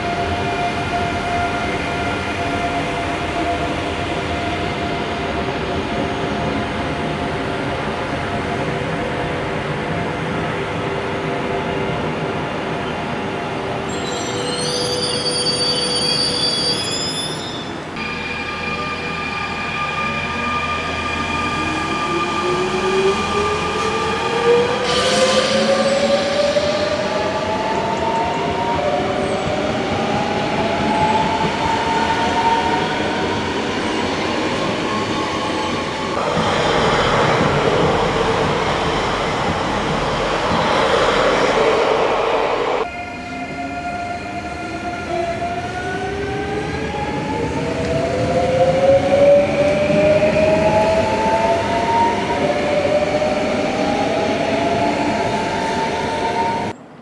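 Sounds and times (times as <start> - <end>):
train wheel and running noise: 36.2 - 42.9.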